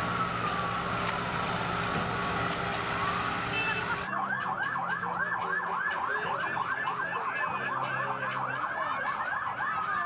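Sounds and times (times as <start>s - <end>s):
siren on fast yelp: 4.0s - 10.0s.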